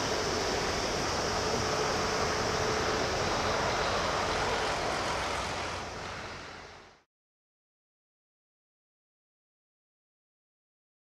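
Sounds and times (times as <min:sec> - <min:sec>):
faint steady hum: 0:00.0 - 0:07.0
jet engines at takeoff: 0:00.0 - 0:07.1.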